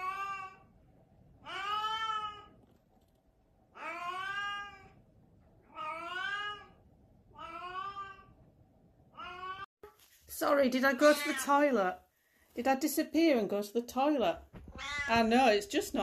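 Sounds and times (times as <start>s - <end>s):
cat meowing: 1.4s - 2.6s, 3.8s - 5.0s, 5.7s - 6.8s, 7.4s - 8.4s, 9.2s - 9.7s, 11.0s - 11.6s, 14.7s - 15.2s.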